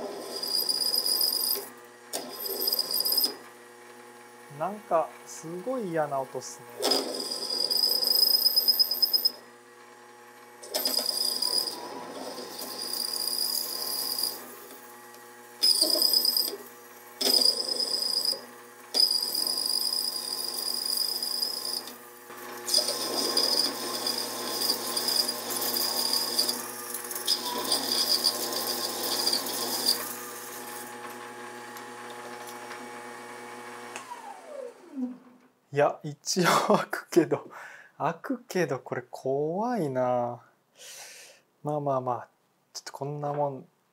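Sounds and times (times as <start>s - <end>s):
lathe tool screeching: 0.0s - 3.4s, 6.8s - 9.4s, 10.6s - 14.8s, 15.6s - 30.9s
motor humming: 0.1s - 35.3s.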